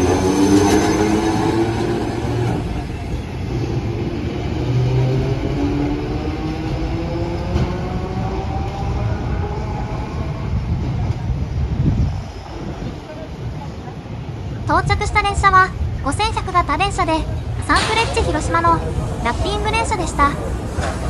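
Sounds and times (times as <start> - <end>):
tram motor whine: 0.0 - 13.1.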